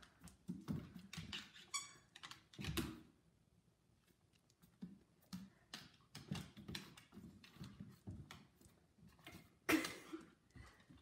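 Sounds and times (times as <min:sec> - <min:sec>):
dog claws tapping on wood floor: 0:04.5 - 0:09.4.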